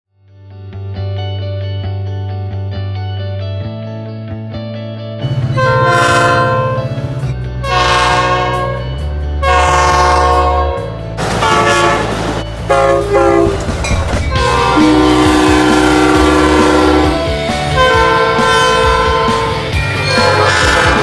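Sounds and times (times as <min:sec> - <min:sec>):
rumble of passing trains: 0:05.2 - 0:21.0
locomotive horn blasts: 0:05.4 - 0:07.0, 0:07.6 - 0:13.7, 0:14.3 - 0:21.0.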